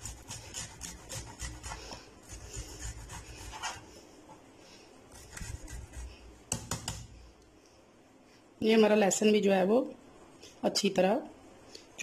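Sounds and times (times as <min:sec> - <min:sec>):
garlic scraping on metal grater: 0:00.0 - 0:03.8, 0:05.1 - 0:06.1.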